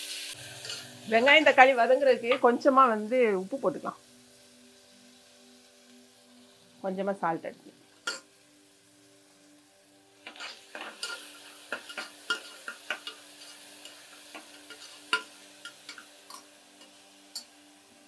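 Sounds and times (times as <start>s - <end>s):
light sizzling in oil: 0.0s - 18.0s
spoon stirring and scraping: 0.6s - 1.0s, 10.2s - 17.6s
spoon clicking against metal: 15.1s - 17.5s.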